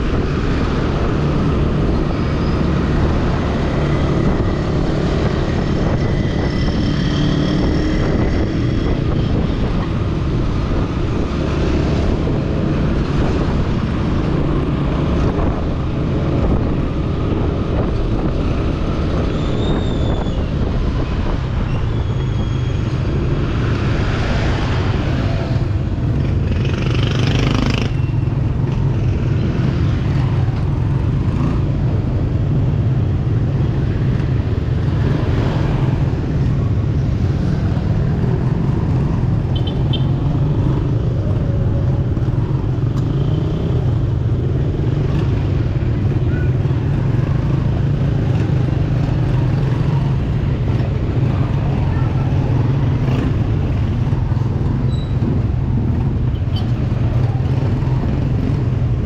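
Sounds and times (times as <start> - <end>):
wind on microphone: 0.0 - 26.5
traffic: 0.0 - 59.0.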